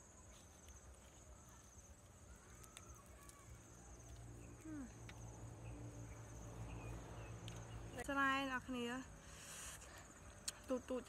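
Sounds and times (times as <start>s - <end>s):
insect chirring: 0.0s - 8.4s.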